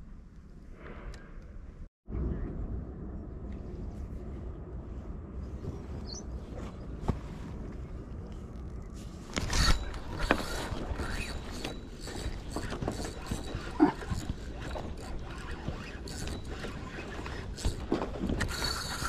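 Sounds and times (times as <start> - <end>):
fishing reel clicking: 18.4 - 19.0.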